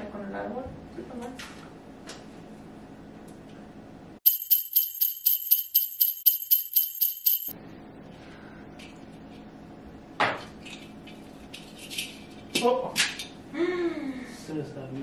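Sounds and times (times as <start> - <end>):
sleigh bells shaken: 4.2 - 7.6.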